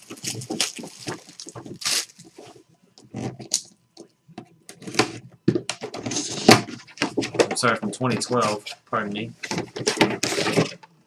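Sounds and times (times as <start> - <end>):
plastic shrink-wrap crinkling: 0.0 - 2.6.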